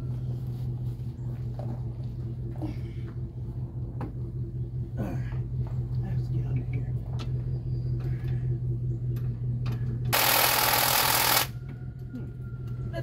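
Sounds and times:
steady low hum: 0.0 - 13.0
cordless power tool running: 10.2 - 11.5.

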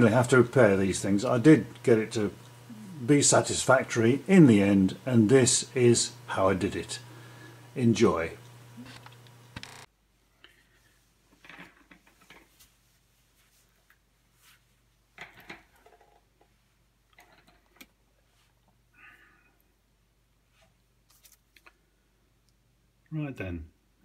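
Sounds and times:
soft clicks and rustles: 8.4 - 18.8, 20.5 - 21.8.

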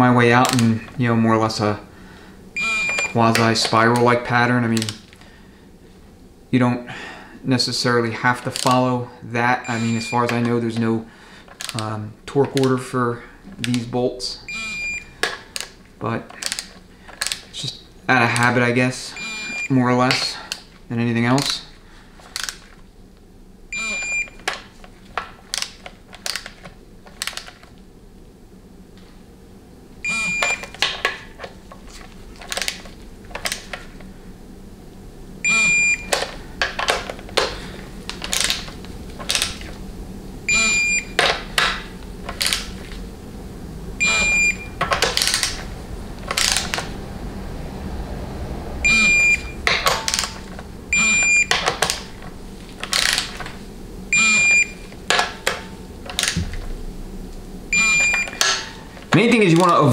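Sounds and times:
torque wrench beeping: 2.6 - 3.2, 9.6 - 10.4, 14.5 - 15.1, 19.2 - 19.8, 23.7 - 24.5, 30.0 - 30.8, 35.4 - 36.3, 40.5 - 41.3, 44.0 - 45.4, 48.8 - 52.0, 54.1 - 55.6, 57.7 - 59.0.

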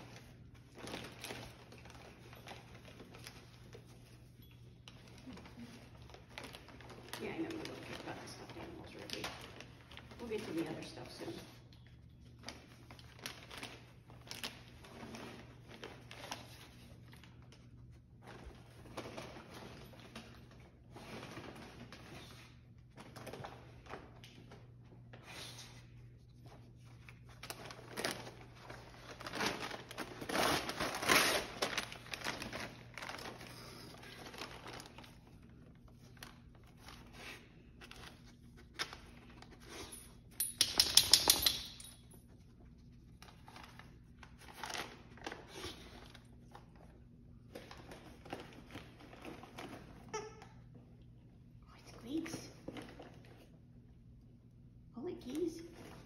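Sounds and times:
wrapping paper crinkling and tearing: 0.0 - 11.4, 12.2 - 17.6, 26.7 - 39.7, 42.7 - 46.9.

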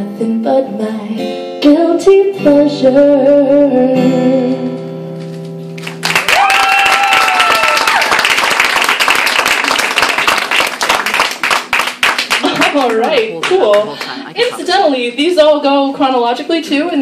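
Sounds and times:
audience applause: 5.8 - 14.6
listener cheering: 6.1 - 8.4.

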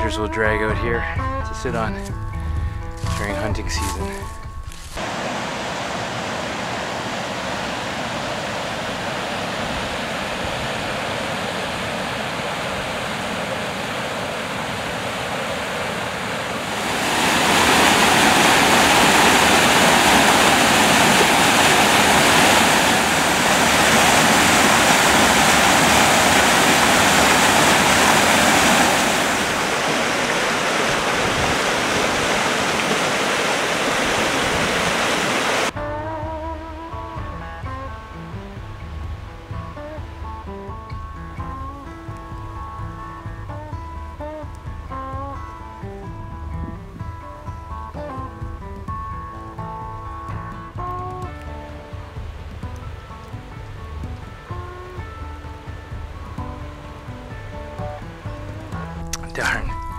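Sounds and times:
river rushing over rapids: 5.0 - 35.8.

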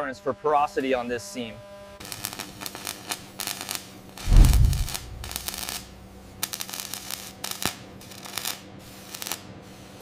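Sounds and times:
welding arc crackling: 2.0 - 9.4
deep boom: 4.3 - 5.6.

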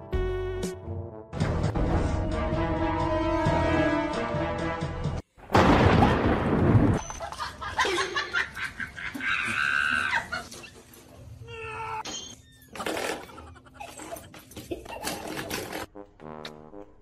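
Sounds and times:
music: 0.0 - 5.2, 15.4 - 17.0
loud thunder clap: 5.5 - 7.0.

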